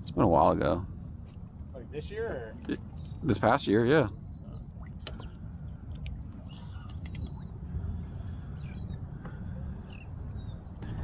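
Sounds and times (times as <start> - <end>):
boat low rumble: 0.0 - 11.0
high bird whistles: 8.2 - 9.0, 9.9 - 10.6.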